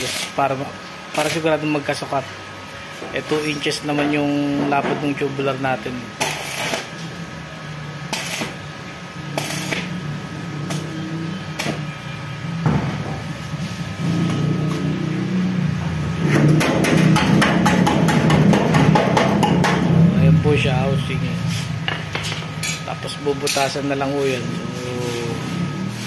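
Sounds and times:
steady low hum: 0:00.0 - 0:26.0
hammer striking steel: 0:16.3 - 0:20.0.

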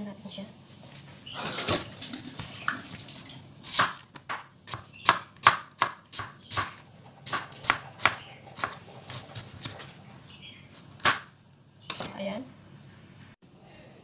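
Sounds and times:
knife slicing onion on cutting board: 0:03.6 - 0:09.9, 0:10.7 - 0:11.3.

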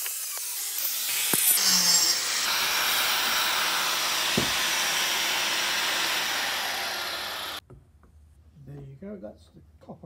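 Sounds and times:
angle grinder cutting metal: 0:00.0 - 0:07.6.

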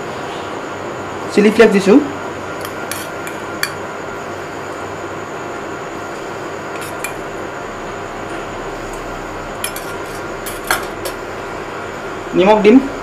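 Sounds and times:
steady background hiss: 0:00.0 - 0:13.0
metal spoon clinking on steel bowl: 0:02.6 - 0:03.8, 0:06.8 - 0:07.2, 0:09.6 - 0:11.2.

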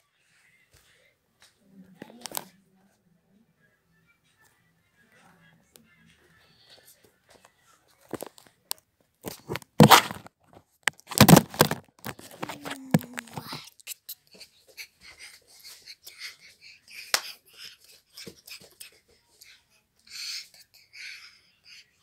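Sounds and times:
phone handling rustling and knocking: 0:09.3 - 0:13.6.

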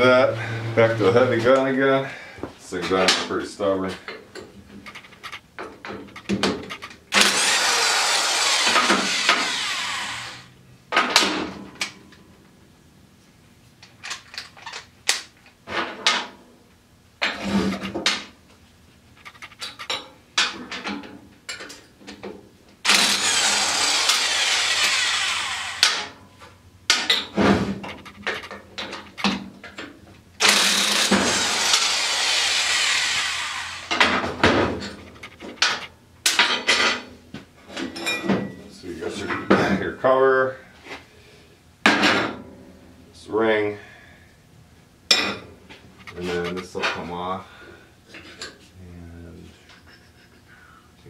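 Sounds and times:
metal clanks: 0:04.4 - 0:07.4, 0:26.9 - 0:31.8
impact wrench hammering: 0:04.8 - 0:05.4, 0:06.0 - 0:10.2, 0:19.2 - 0:20.5, 0:22.9 - 0:26.2, 0:26.9 - 0:29.4, 0:30.4 - 0:36.6.

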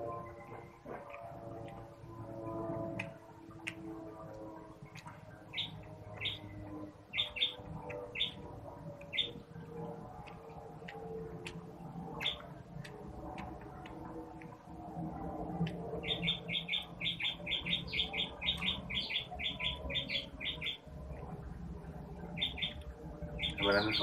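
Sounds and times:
soft clicks from eating: 0:02.9 - 0:05.2, 0:10.0 - 0:11.8, 0:12.4 - 0:14.6
small bird chirping: 0:04.9 - 0:09.5, 0:12.2 - 0:12.5, 0:16.0 - 0:20.9, 0:22.2 - 0:24.0.

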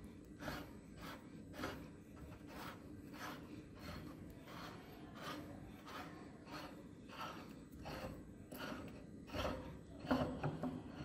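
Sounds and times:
hand-cranked grinder rasping: 0:00.2 - 0:11.0.

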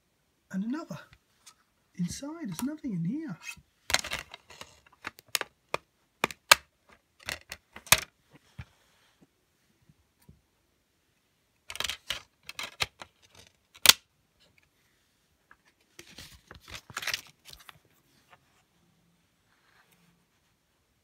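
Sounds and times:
plastic case clicking: 0:03.9 - 0:08.1
plastic case snapping: 0:03.9 - 0:08.1.

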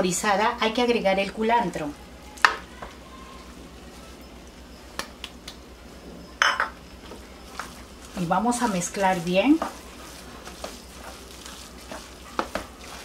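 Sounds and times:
spoon and bowl clinking on pan: 0:06.4 - 0:06.8.

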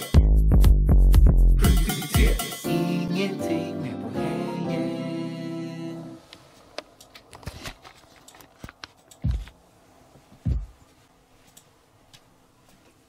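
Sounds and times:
keyboard and mouse clicking: 0:08.2 - 0:09.6
loud dull thumps: 0:10.4 - 0:10.8.

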